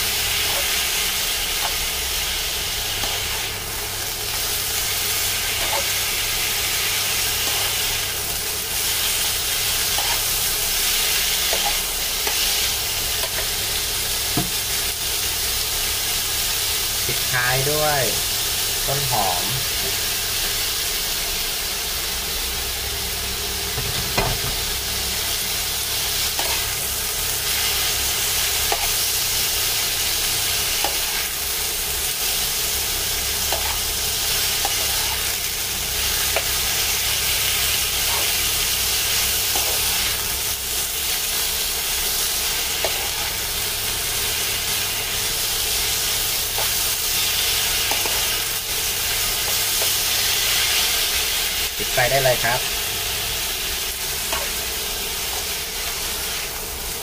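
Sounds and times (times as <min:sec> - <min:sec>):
food sizzling in a frying pan: 0:00.0 - 0:57.0
spatula scraping a pan: 0:09.9 - 0:10.4, 0:26.3 - 0:26.8.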